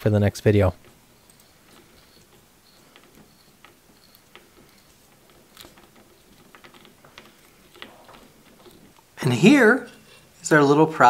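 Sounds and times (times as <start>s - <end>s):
hand tap clicking and scraping: 0.8s - 9.2s.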